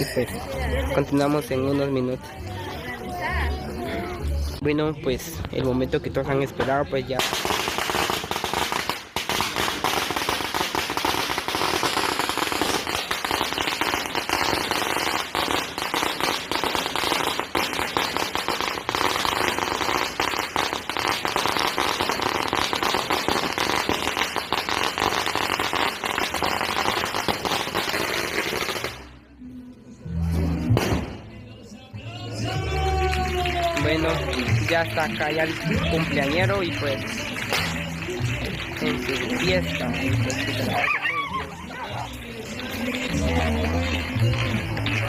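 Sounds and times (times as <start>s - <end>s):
firecrackers popping rapidly: 7.2s - 29.2s, 30.8s - 31.3s, 32.9s - 45.0s.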